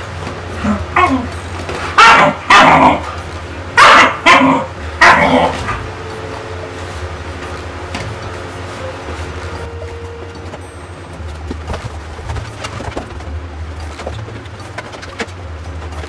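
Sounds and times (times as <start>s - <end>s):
steady low hum: 0.0s - 16.0s
dog barking: 2.0s - 3.0s, 3.8s - 5.6s.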